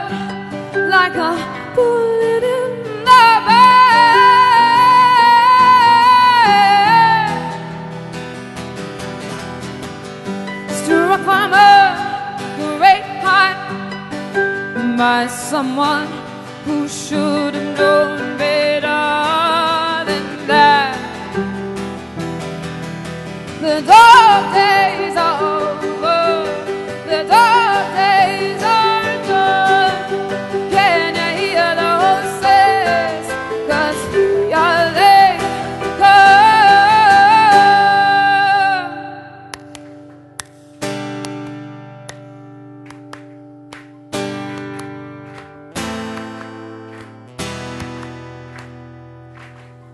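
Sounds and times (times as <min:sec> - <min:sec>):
woman singing with vibrato: 0:00.0 - 0:07.8, 0:10.8 - 0:13.9, 0:14.6 - 0:21.5, 0:23.6 - 0:39.5
acoustic guitar: 0:00.0 - 0:49.9.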